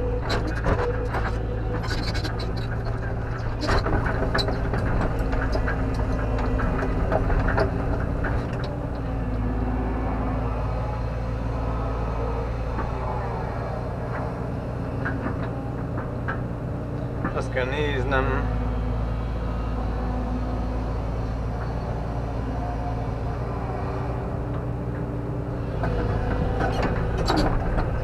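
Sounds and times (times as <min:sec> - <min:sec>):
clanks and knocks: 0:00.0 - 0:09.5, 0:12.7 - 0:18.0, 0:24.4 - 0:28.0
excavator diesel engine running: 0:00.0 - 0:28.0.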